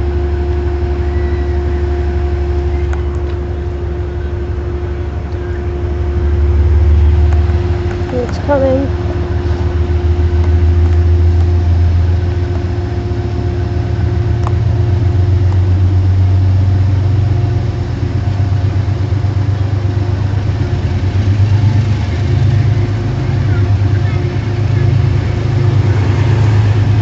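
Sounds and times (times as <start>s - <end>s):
diesel train engine rumble: 0.0s - 27.0s.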